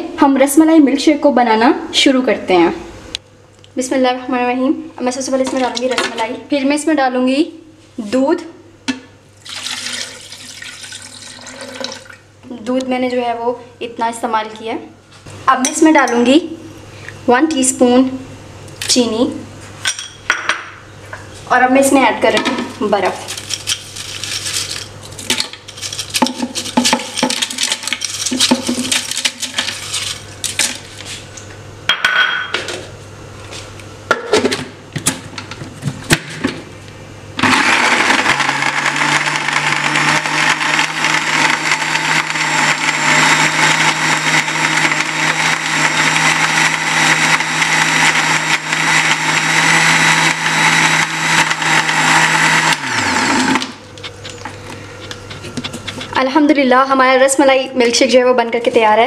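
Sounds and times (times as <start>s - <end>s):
electric blender running: 9.5s - 12.1s, 37.4s - 56.2s.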